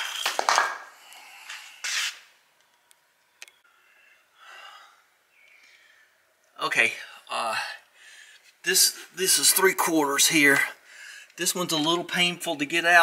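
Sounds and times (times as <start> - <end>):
soft breath: 7.8 - 8.6
man breathing out sharply: 10.8 - 11.3.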